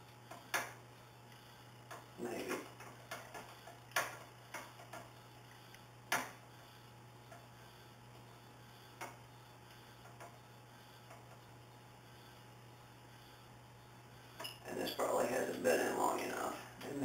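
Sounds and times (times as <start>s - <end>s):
faint low hum: 0.0s - 17.0s
curling iron clicks and taps: 0.3s - 0.8s, 2.8s - 5.1s.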